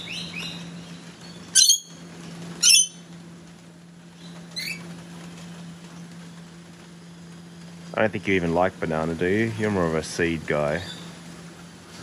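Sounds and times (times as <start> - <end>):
cockatoo squawks: 1.6 - 2.0, 2.6 - 3.0.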